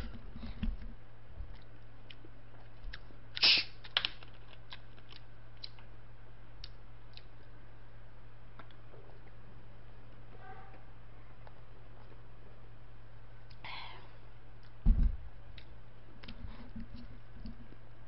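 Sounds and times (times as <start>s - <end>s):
low electrical hum: 0.0s - 18.0s
soda bottle hiss: 3.4s - 3.8s.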